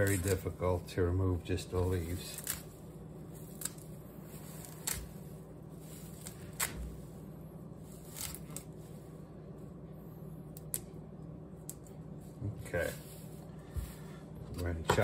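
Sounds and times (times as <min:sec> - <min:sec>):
low hum: 0:00.0 - 0:15.0
stems snapping: 0:10.5 - 0:10.9, 0:11.6 - 0:11.9.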